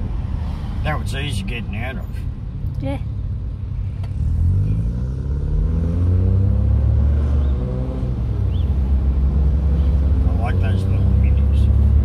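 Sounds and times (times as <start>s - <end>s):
vehicle engine accelerating: 4.0s - 12.0s.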